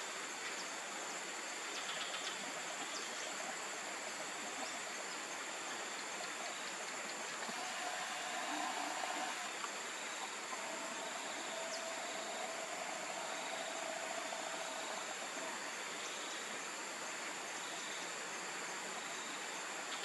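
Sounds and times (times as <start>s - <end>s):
even hiss: 0.0s - 20.0s
faint low hum: 2.7s - 18.1s
high-pitched insect drone: 6.4s - 16.6s.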